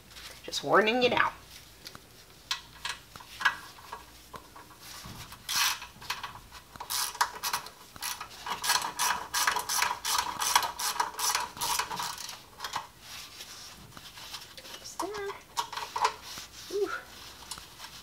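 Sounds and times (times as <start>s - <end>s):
ratchet wrench clicking: 5.5s - 6.2s, 6.8s - 12.8s.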